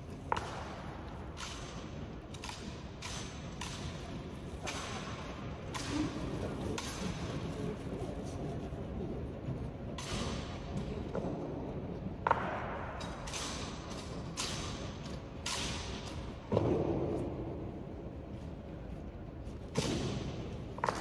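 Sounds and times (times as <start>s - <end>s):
rifles slapped and knocked: 0.2s - 7.3s, 9.9s - 11.4s, 12.2s - 17.2s.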